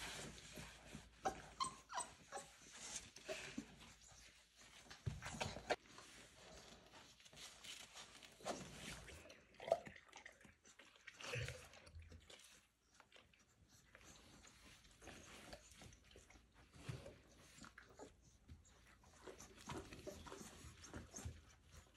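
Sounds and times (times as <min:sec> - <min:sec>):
chewing and scuffling: 0:00.0 - 0:21.9
puppy squeaks: 0:01.2 - 0:02.7.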